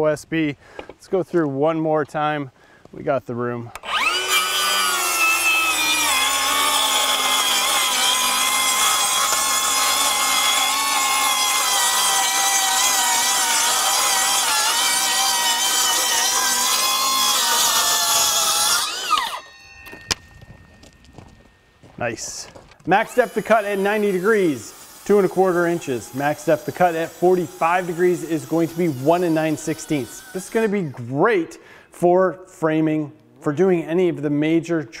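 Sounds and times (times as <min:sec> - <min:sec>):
circular saw whining: 0:03.7 - 0:31.0.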